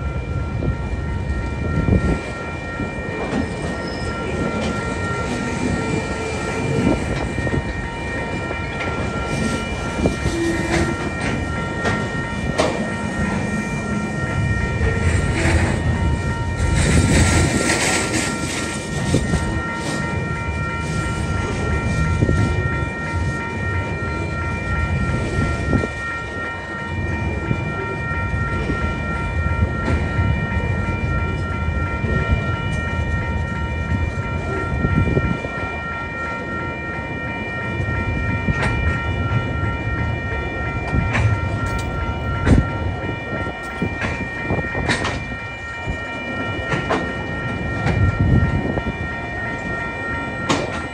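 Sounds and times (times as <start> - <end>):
steady high-pitched tones: 0.0 - 50.9
steel wheels rumbling on rail: 0.0 - 50.9.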